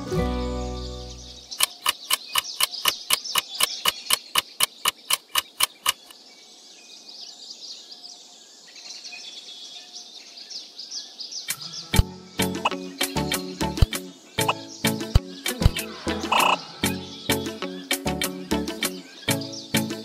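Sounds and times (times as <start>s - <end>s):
birds chirping: 0.0s - 20.0s
rapid sharp ticks: 1.5s - 6.1s.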